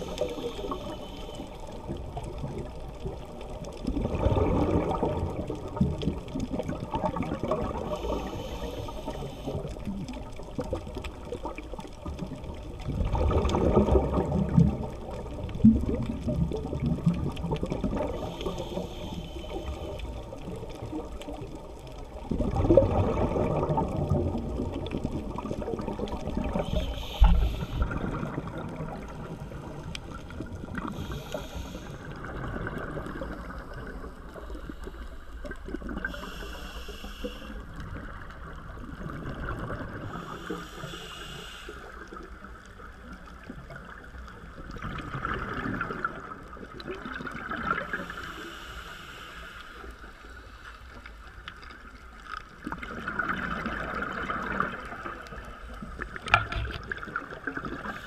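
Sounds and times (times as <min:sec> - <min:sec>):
exhaled bubbles surging underwater: 0:00.0 - 0:49.2, 0:49.8 - 0:58.0
hiss and rush of water: 0:00.0 - 0:58.0
diver breathing through regulator: 0:07.8 - 0:09.6, 0:18.1 - 0:20.1, 0:26.5 - 0:28.4, 0:30.8 - 0:35.4, 0:36.0 - 0:37.7, 0:40.1 - 0:42.1, 0:47.8 - 0:50.9.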